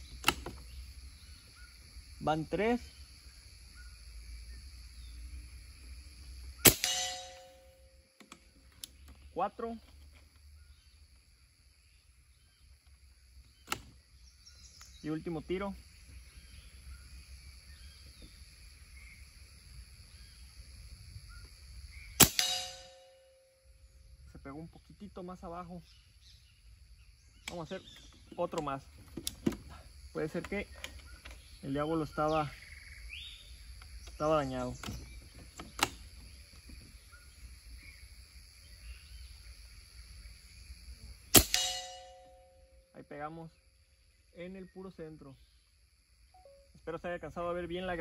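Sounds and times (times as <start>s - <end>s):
insect buzz: 0.0s - 48.0s
air rifle shot crack: 6.6s - 7.5s, 22.2s - 23.0s, 41.3s - 42.2s
weaker crack with ringing tone: 6.6s - 8.0s, 22.2s - 23.6s, 41.3s - 42.8s.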